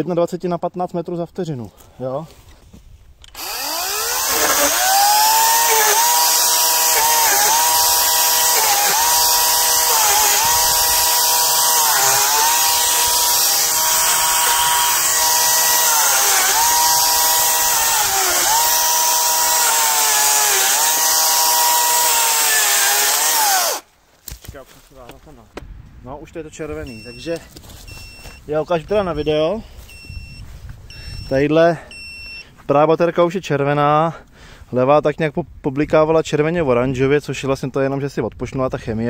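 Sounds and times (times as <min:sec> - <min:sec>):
chainsaw cutting branches: 0:03.4 - 0:23.9.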